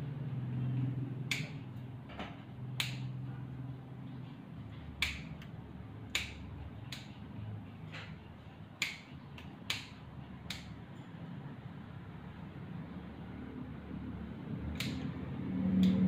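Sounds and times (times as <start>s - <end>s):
scissors snipping fur: 1.2s - 1.6s, 2.8s - 3.2s, 5.0s - 5.5s, 6.1s - 7.2s, 8.8s - 10.8s, 14.7s - 15.2s.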